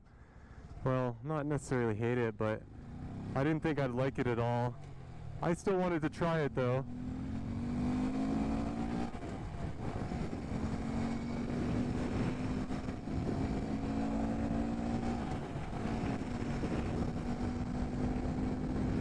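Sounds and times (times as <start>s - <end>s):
low wind rumble: 0.0s - 19.0s
motorcycle engine at high revs: 2.8s - 3.6s, 6.8s - 19.0s.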